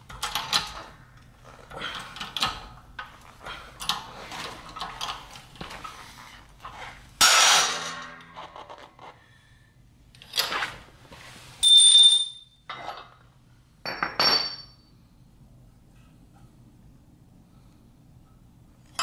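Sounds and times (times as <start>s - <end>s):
metal knocks and clinks: 13.9s - 14.8s.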